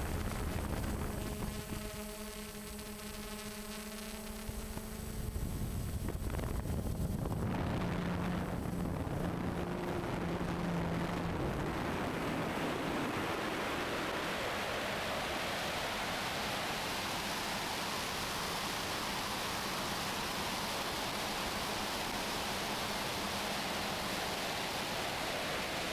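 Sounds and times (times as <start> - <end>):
wind noise on microphone: 0.0 - 15.6
drone propellers humming: 0.0 - 25.9.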